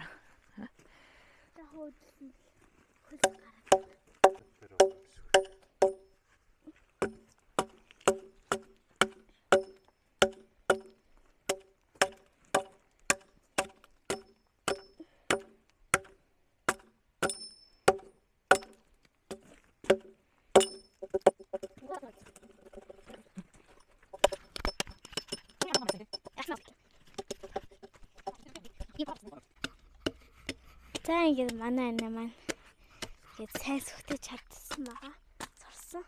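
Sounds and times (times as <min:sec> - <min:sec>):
axe chopping wood: 0:03.2 - 0:06.1, 0:07.0 - 0:22.9, 0:24.1 - 0:26.5, 0:27.1 - 0:33.8.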